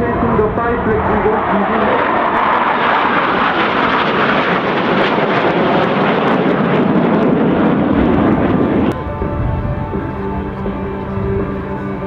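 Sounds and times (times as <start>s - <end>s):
jets flying past: 0.0s - 12.0s.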